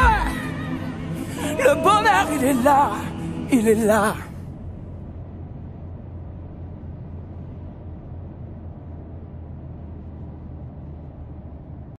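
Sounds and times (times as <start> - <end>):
car cabin highway rumble: 0.0 - 12.0.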